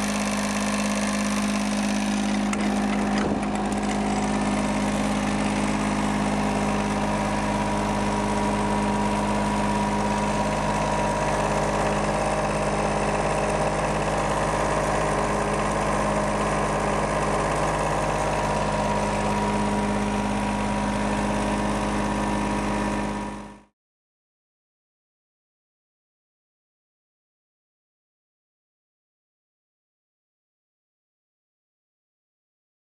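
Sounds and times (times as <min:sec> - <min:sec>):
diesel air compressor running: 0:00.0 - 0:23.7.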